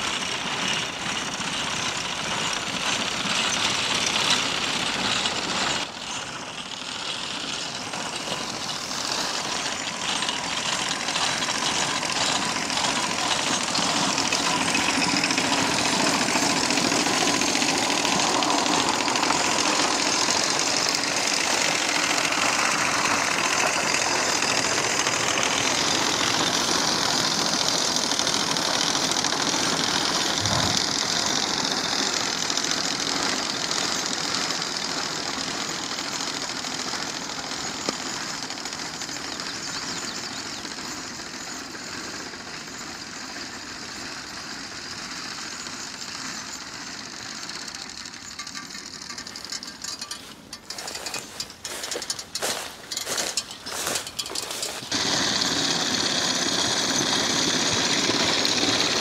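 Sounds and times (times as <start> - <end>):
sickle bar mower knife clatter: 48.3 - 55.0.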